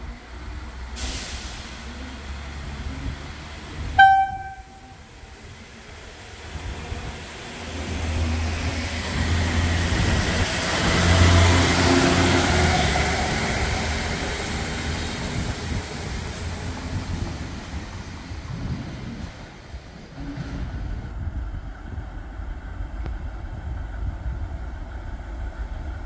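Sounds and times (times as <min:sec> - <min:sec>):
diesel train engine drone: 0:00.0 - 0:26.0
train wheels rushing on rails: 0:05.3 - 0:21.1.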